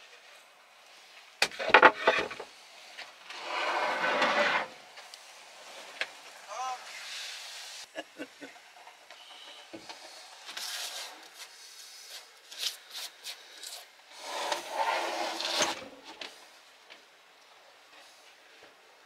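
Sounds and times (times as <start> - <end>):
wooden worktop scraping slide: 1.6 - 2.5, 3.3 - 4.8, 14.1 - 16.0.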